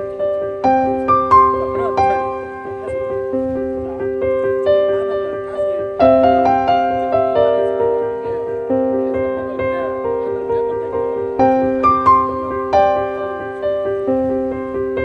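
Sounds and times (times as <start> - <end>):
gentle solo piano: 0.0 - 15.0.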